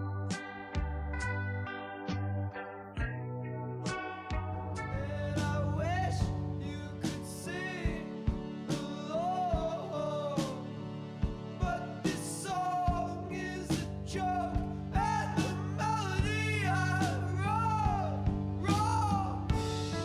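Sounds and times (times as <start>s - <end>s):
song with singing over a beat: 4.7s - 20.0s.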